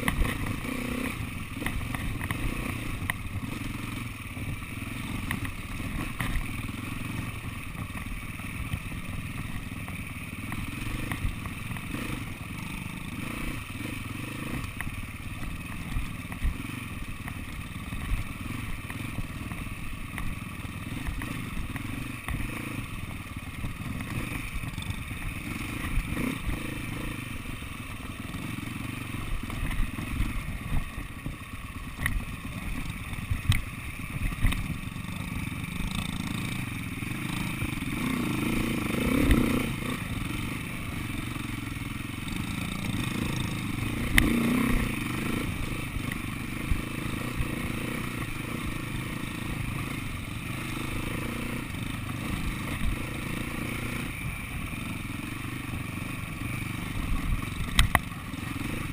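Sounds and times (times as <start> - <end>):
motorcycle engine running: 0.0 - 58.9
motorcycle knocking over bumps: 4.4 - 12.0, 29.2 - 35.0.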